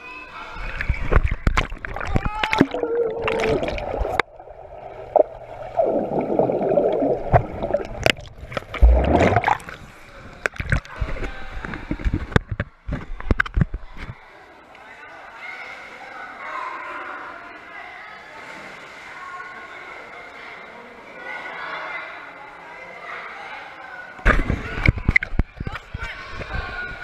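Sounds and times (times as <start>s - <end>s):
water splashing: 0.6s - 12.4s
underwater bubbling: 0.6s - 12.5s.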